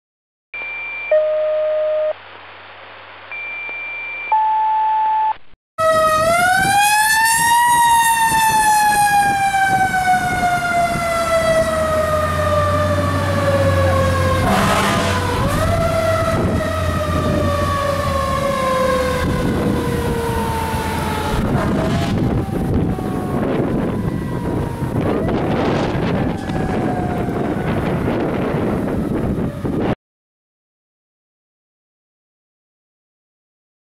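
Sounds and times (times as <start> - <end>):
radio alert tones: 0.6 - 2.4, 3.2 - 5.5, 14.4 - 15.4.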